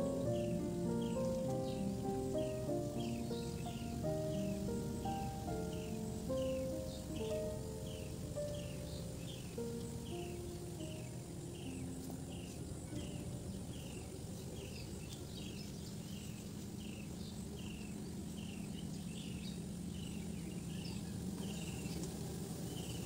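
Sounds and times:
high falling chirp: 0.0 - 14.0
low steady hum: 0.0 - 22.9.

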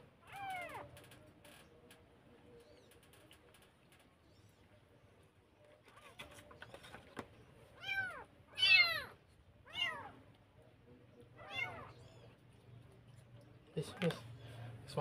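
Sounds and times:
kitten meowing: 7.8 - 10.1, 11.4 - 12.0.

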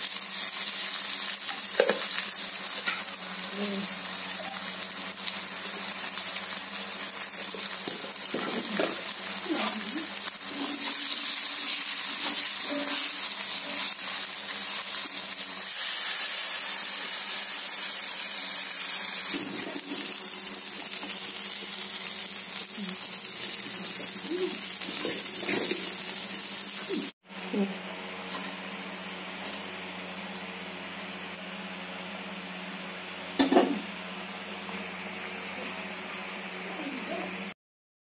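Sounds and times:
food frying in hot oil: 0.0 - 27.2
water hissing in hot pan: 0.0 - 27.2.

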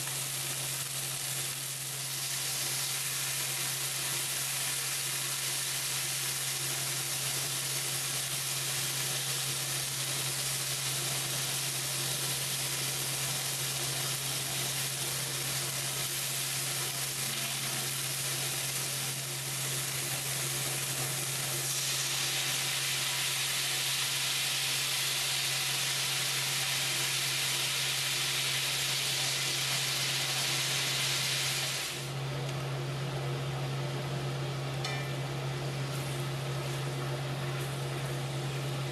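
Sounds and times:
chicken sizzling in hot oil: 0.0 - 32.2.

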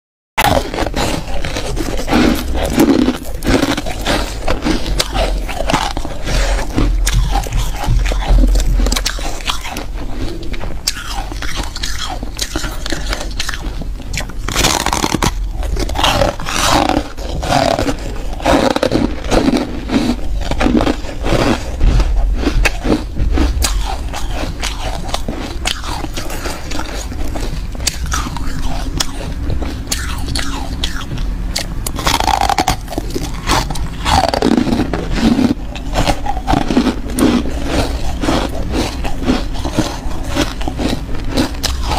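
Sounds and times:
ice being chewed: 0.4 - 41.9.

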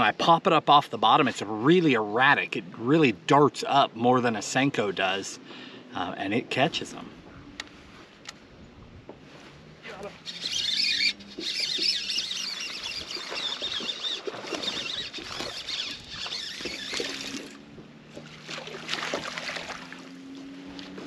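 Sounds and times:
trolling motor humming: 4.1 - 21.0
water splashing and trickling: 10.1 - 21.0.

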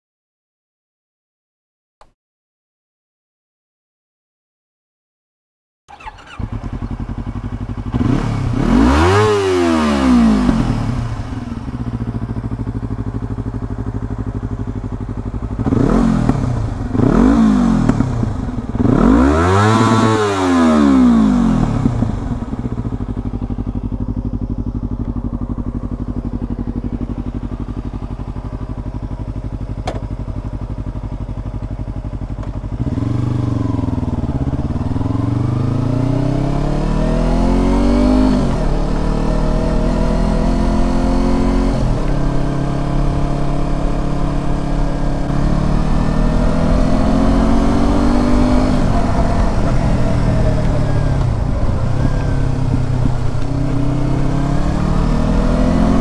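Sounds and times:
motorcycle engine idling: 5.9 - 9.2, 10.2 - 19.2, 20.9 - 36.8, 41.8 - 56.0
motorcycle engine revving: 5.9 - 56.0.

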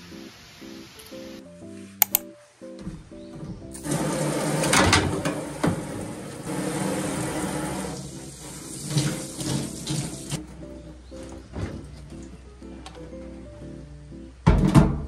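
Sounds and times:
tap water running into sink: 3.8 - 10.4.

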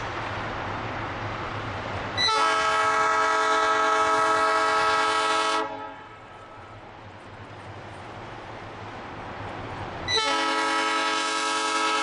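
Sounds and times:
train running rumble: 0.0 - 12.0
train air horn blast: 2.2 - 6.5, 10.1 - 12.0.

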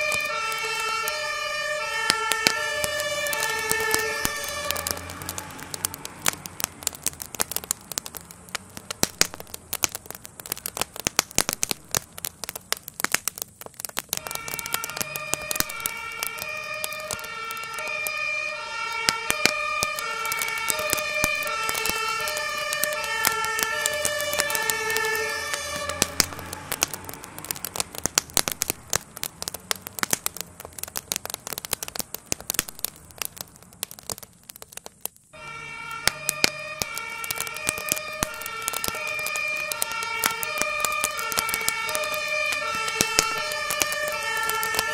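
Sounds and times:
siren: 0.0 - 8.2, 14.1 - 27.6, 35.3 - 44.9
fire crackling and popping: 0.0 - 44.9.

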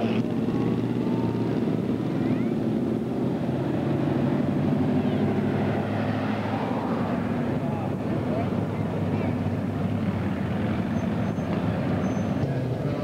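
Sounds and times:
car engines at low revs: 0.0 - 13.0.

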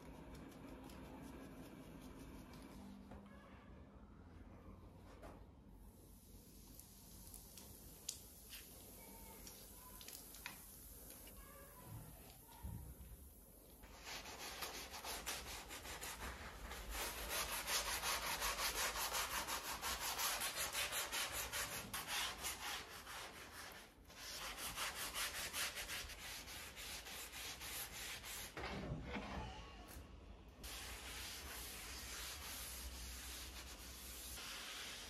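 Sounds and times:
sponge scrubbing wooden board: 30.6 - 35.0.

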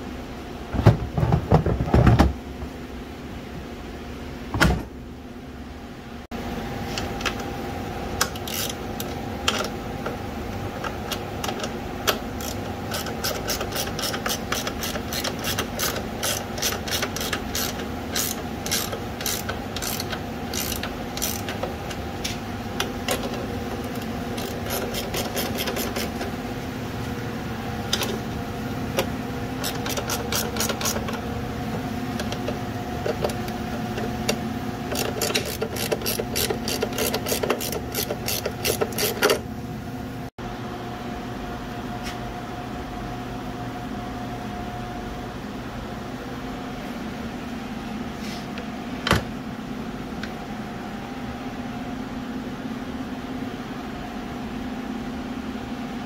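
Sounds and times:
steady background hum: 0.0 - 56.0
ratchet wrench clicking: 8.2 - 9.7, 11.4 - 21.7, 24.4 - 26.2, 29.6 - 31.1, 34.9 - 39.4.

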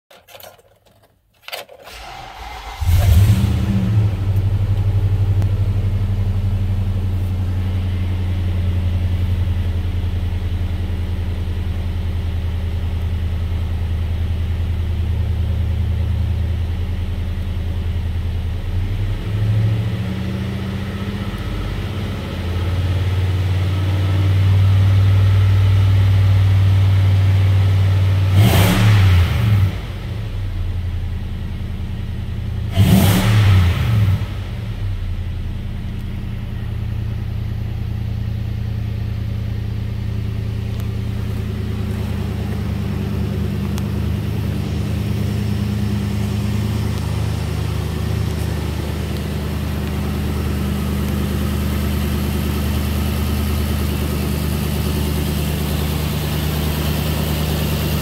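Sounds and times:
engine revving: 1.9 - 9.1, 28.1 - 30.4, 32.7 - 35.0, 40.7 - 58.0
car engine idling: 1.9 - 18.9, 34.2 - 58.0.

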